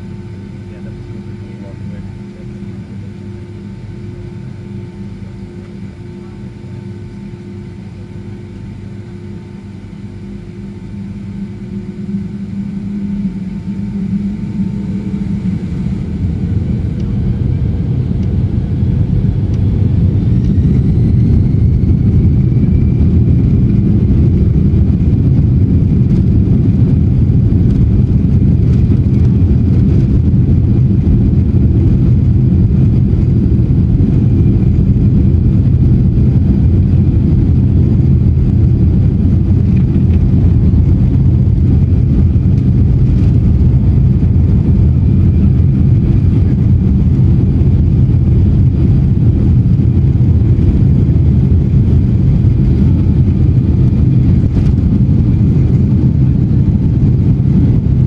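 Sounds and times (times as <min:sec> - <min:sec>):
jet engines roaring at takeoff: 0:00.0 - 0:58.0
wheels rumbling on runway: 0:11.2 - 0:58.0.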